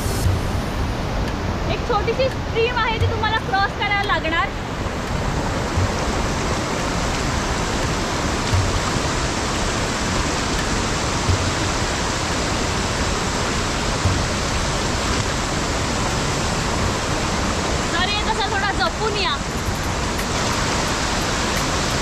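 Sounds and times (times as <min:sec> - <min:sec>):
soft low thumps: 0:00.0 - 0:01.6, 0:02.2 - 0:12.0, 0:13.5 - 0:14.9
stream rushing: 0:00.0 - 0:22.0.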